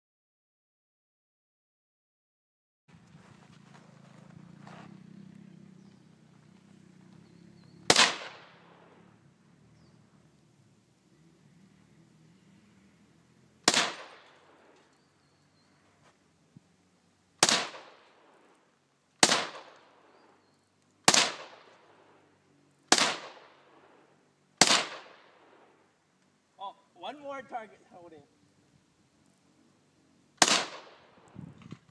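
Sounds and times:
rifle shots with echo: 7.8 - 9.1, 13.6 - 14.8, 17.4 - 18.5, 19.2 - 20.2, 21.0 - 22.3, 22.9 - 25.8, 30.4 - 31.4.

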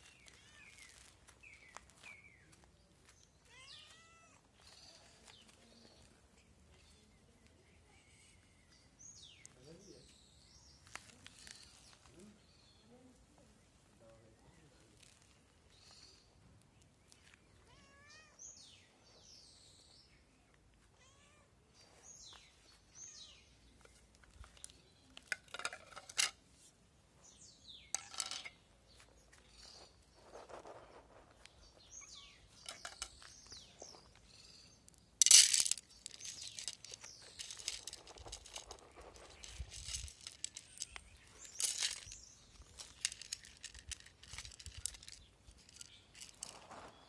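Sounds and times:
cats meowing: 0.2 - 1.0, 3.4 - 5.2, 17.6 - 18.5, 20.9 - 21.7
dry cat food rustling: 34.9 - 47.0.

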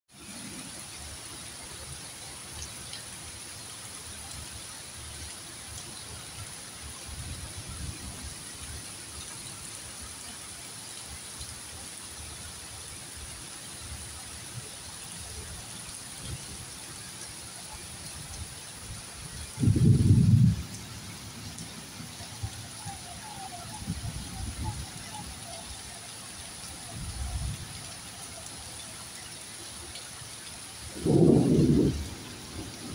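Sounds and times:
heavy rain falling: 0.1 - 32.9
low rumbling: 30.9 - 32.9.

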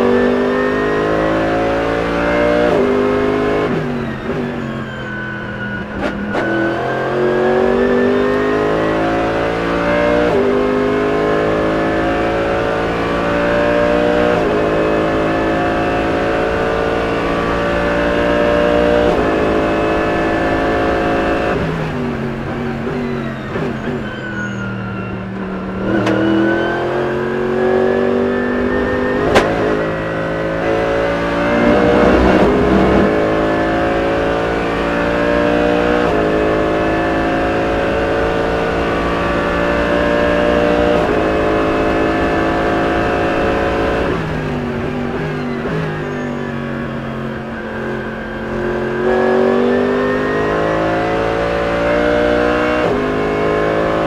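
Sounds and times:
racing car engine at speed: 0.0 - 54.0.

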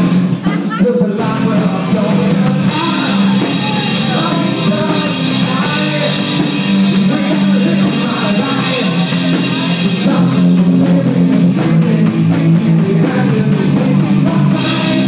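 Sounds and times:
drums: 0.0 - 15.0
man singing: 0.0 - 15.0
rock band playing loudly: 0.0 - 15.0.

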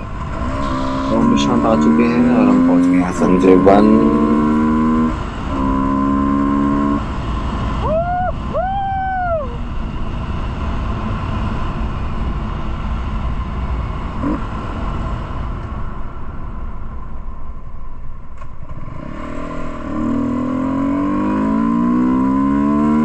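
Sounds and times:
short rising and falling calls: 0.0 - 5.8, 7.8 - 9.6
steady held tone: 0.0 - 7.0
vehicle rumble: 0.0 - 23.0.

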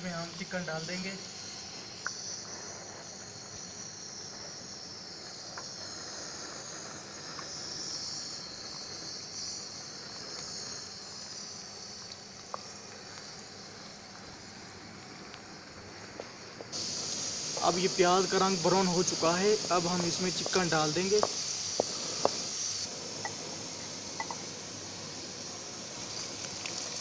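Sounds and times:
onions sizzling in hot oil: 16.7 - 27.0.

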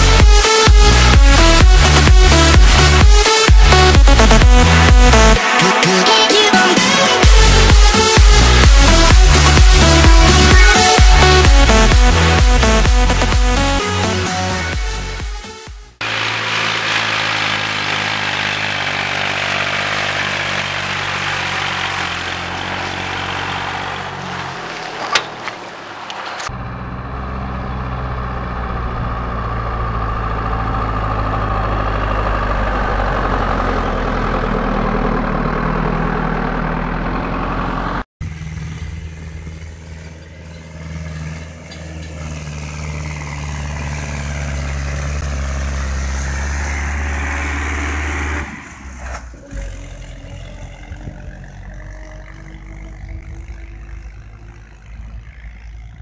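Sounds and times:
diesel tractor engines running: 0.0 - 56.0
tractor passing close by: 15.9 - 56.0.

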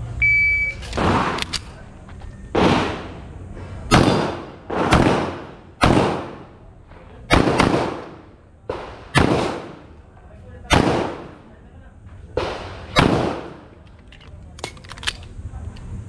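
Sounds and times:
handgun shots with echo: 1.0 - 1.7, 2.6 - 3.1, 3.9 - 6.5, 7.3 - 9.9, 12.4 - 13.7.

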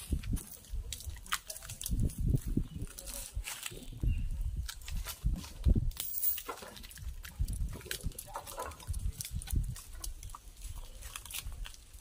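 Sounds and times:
brushing against branches: 0.0 - 4.0.

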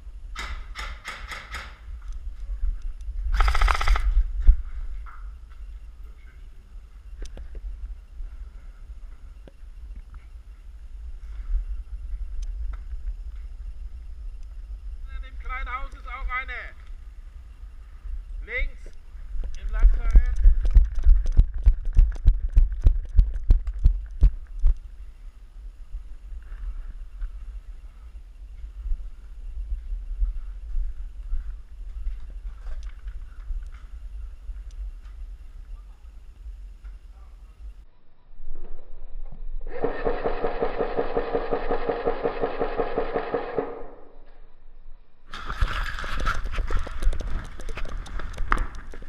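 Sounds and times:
low rumble of wind: 0.0 - 49.0
airsoft gun full-auto burst: 3.3 - 4.2, 39.7 - 44.0
running footsteps: 28.5 - 35.4, 45.3 - 49.0.

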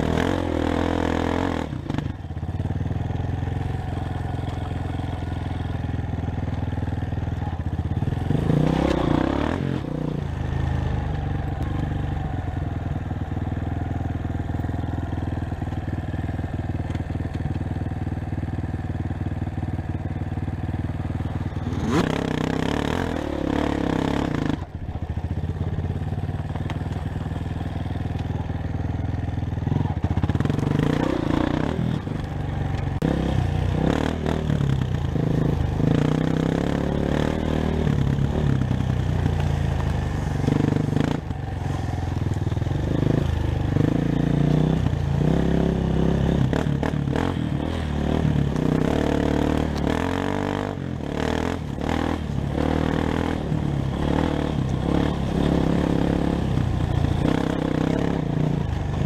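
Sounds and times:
dirt bike engine revving: 0.0 - 5.8, 7.9 - 12.2, 21.1 - 24.8, 29.6 - 59.0.

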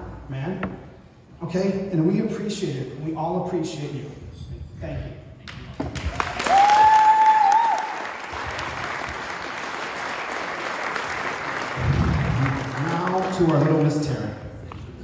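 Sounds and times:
guests applauding: 5.9 - 14.4
long high cheer: 6.0 - 9.1.

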